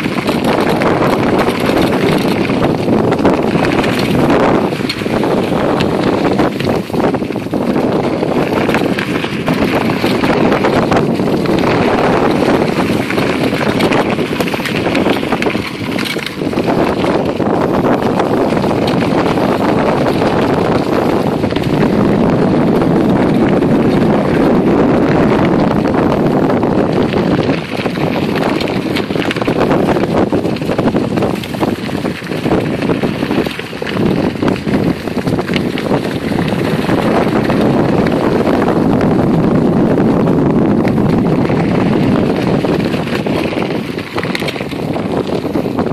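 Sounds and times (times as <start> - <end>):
bicycle tyres rolling over dry leaves: 0.0 - 45.9
wind on microphone: 0.0 - 45.9.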